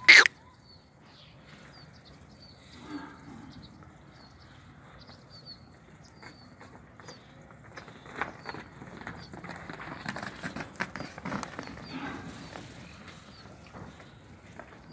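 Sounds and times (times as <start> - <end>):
buffalo calf calling: 0.0 - 0.3
small birds chirping: 0.0 - 10.1, 11.4 - 14.9.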